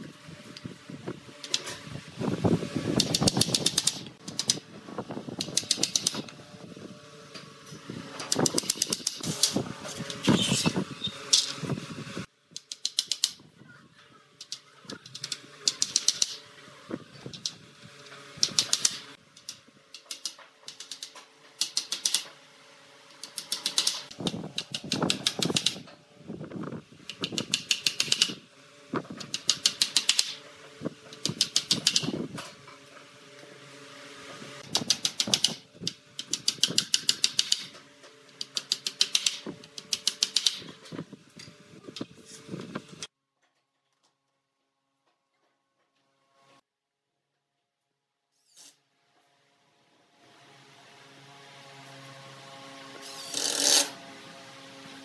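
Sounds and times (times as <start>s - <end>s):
hand tool clicking on wood: 3.0s - 4.6s, 5.4s - 6.3s, 8.3s - 9.6s, 12.6s - 13.4s, 14.4s - 16.4s, 18.4s - 22.3s, 23.1s - 25.8s, 27.1s - 28.4s, 29.2s - 30.4s, 31.1s - 32.2s, 34.7s - 40.7s.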